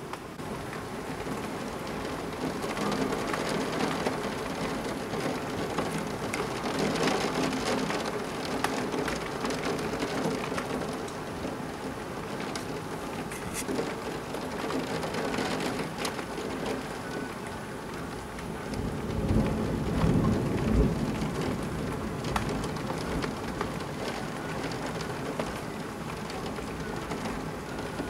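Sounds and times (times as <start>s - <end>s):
heavy rain: 0.0s - 28.0s
thunder rumbling: 0.5s - 11.6s, 18.1s - 28.0s.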